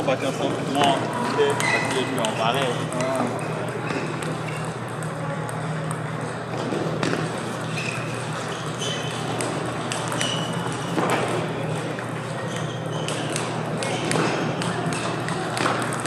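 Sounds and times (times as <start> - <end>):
table tennis balls clicking: 0.7 - 16.0.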